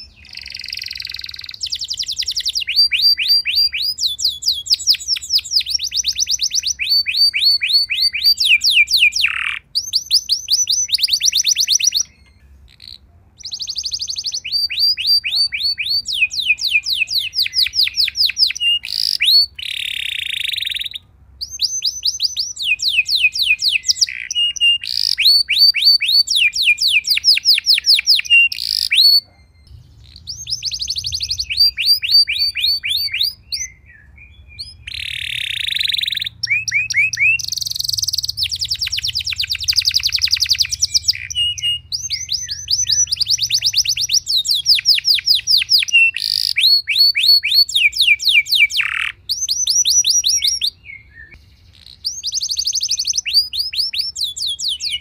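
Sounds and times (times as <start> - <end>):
canary singing trills: 0.0 - 55.0.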